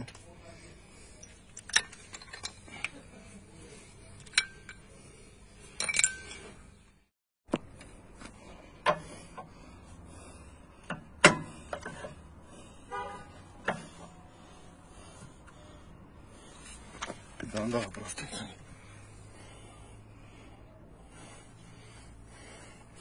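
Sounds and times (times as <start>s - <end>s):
metal clinks of brake parts: 1.2s - 3.0s, 4.2s - 4.9s, 5.7s - 6.7s.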